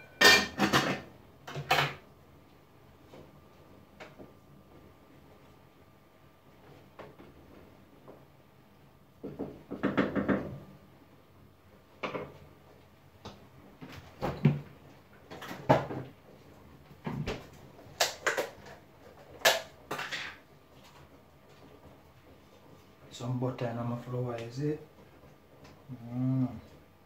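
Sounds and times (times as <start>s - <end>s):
pots and lids clunking: 0.0s - 2.0s.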